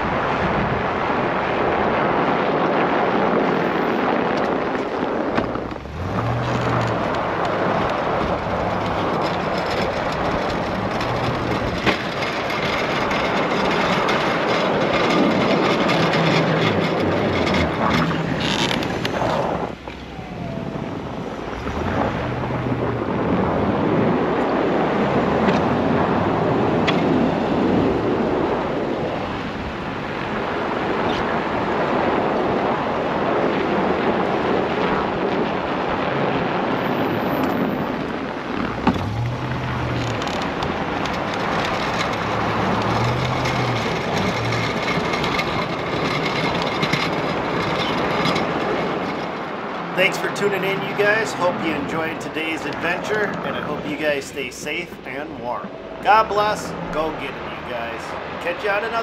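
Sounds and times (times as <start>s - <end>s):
wind buffeting microphone: 0.0s - 59.0s
truck engine running: 4.4s - 28.4s, 37.8s - 58.4s.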